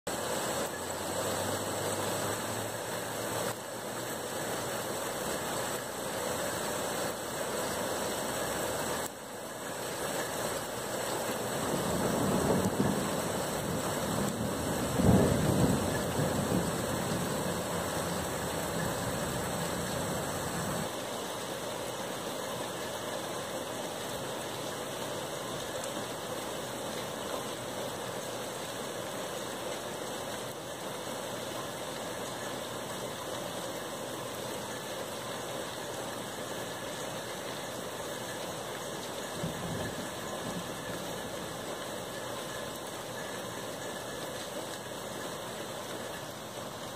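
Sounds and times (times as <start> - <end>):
steady background hiss: 0.2 - 46.9
thunder rumbling: 11.6 - 20.9, 39.3 - 41.4.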